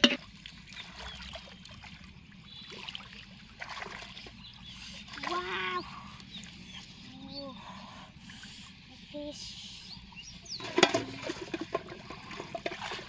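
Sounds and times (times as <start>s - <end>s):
water splashing: 0.0s - 7.1s, 10.5s - 13.0s.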